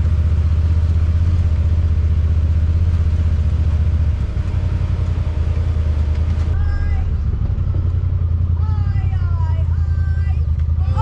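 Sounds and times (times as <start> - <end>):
utility vehicle engine running: 0.0 - 11.0.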